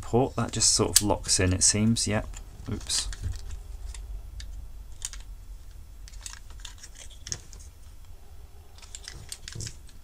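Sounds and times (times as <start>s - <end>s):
plastic panels clicking and rustling: 6.1s - 7.7s, 8.8s - 10.0s.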